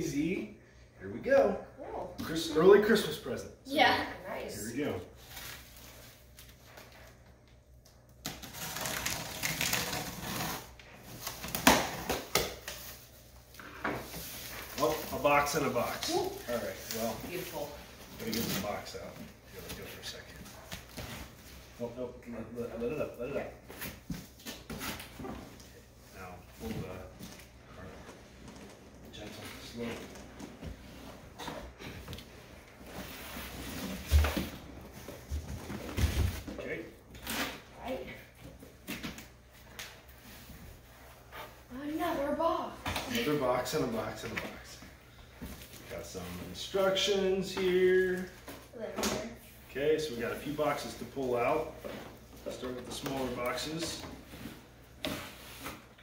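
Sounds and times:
packing tape ripping: 8.2s - 12.8s.

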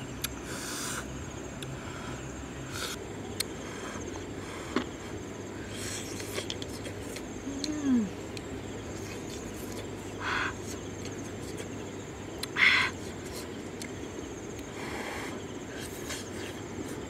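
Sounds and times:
faint insect chirping: 0.0s - 17.0s
woman humming mmm: 7.4s - 8.2s.

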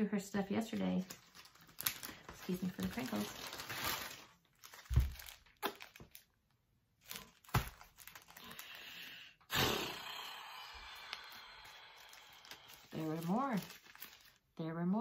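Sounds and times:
packaging crinkling: 0.8s - 8.9s, 11.0s - 14.5s.

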